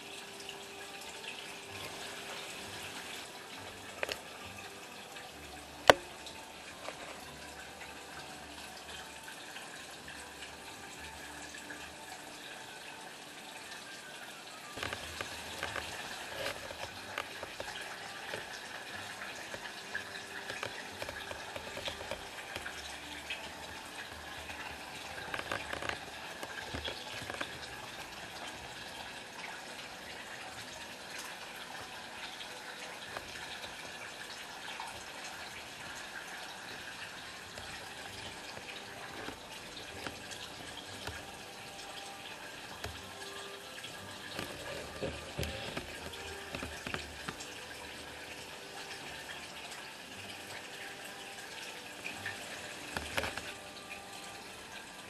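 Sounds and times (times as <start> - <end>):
pond water splashing and trickling: 0.0 - 55.0
small crackles: 14.6 - 28.8, 30.7 - 49.2, 52.1 - 54.5.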